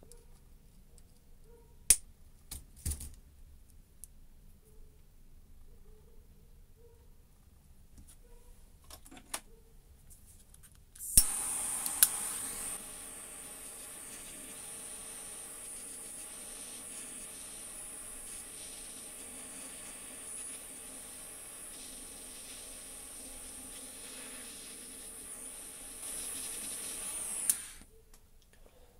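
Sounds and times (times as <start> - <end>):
torch igniter click: 11.0 - 16.2, 26.5 - 27.9
torch flame hissing: 11.0 - 27.9.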